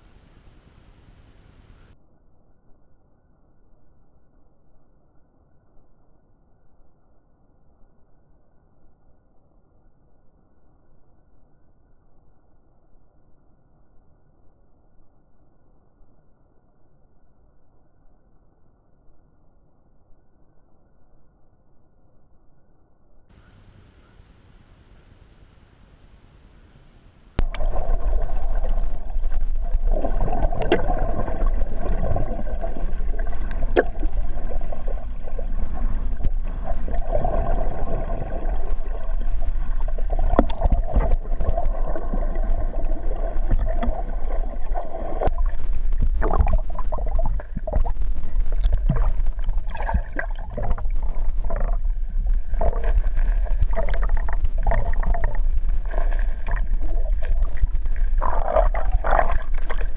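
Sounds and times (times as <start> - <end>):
underwater rumble of moving water: 23.3 - 59.9
underwater clicks: 27.4 - 37.9, 38.6 - 59.9
gurgles: 56.4 - 59.9.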